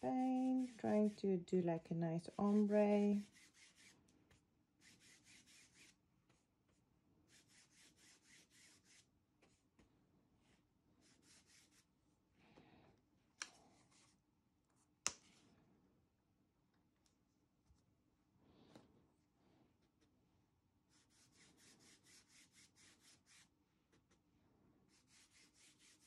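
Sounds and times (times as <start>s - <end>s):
paintbrush scrubbing fabric: 0.0s - 4.1s, 4.8s - 9.6s, 10.4s - 12.0s, 20.9s - 23.6s, 24.8s - 26.0s.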